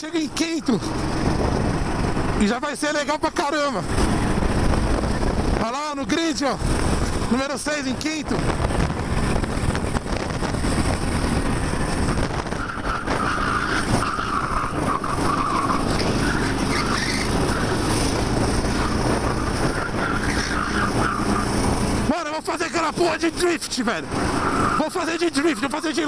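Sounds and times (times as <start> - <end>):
kart engine running hard: 8.4 - 22.1
tyres squealing: 12.4 - 26.0.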